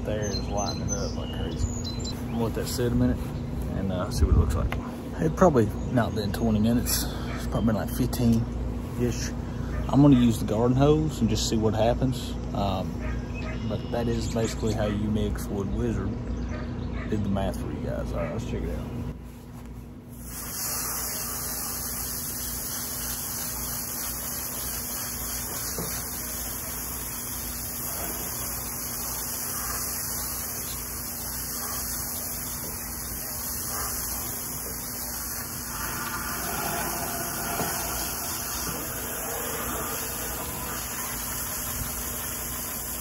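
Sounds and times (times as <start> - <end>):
hose spray nozzle hissing: 20.2 - 43.0.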